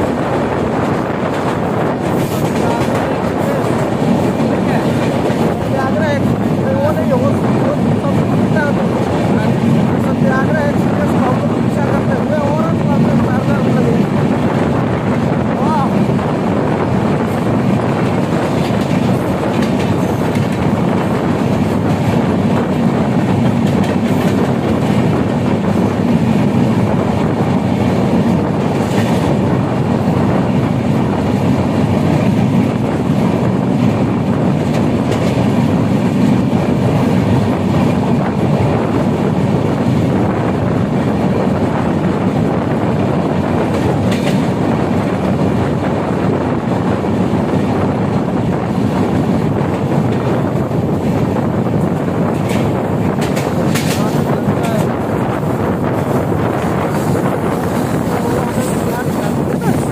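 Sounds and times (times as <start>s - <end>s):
train wheels rumbling on rails: 0.0s - 59.9s
clicks over rail joints: 52.3s - 54.9s.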